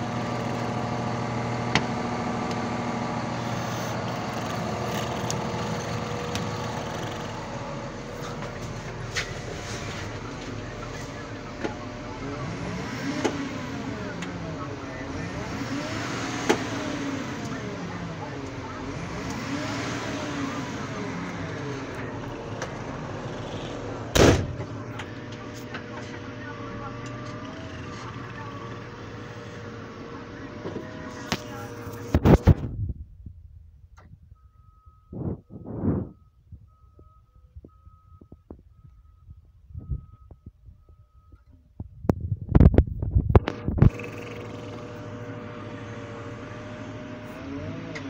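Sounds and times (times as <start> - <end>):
diesel engine idling: 0.0 - 42.4, 43.2 - 48.0
loud thump: 24.1 - 24.7.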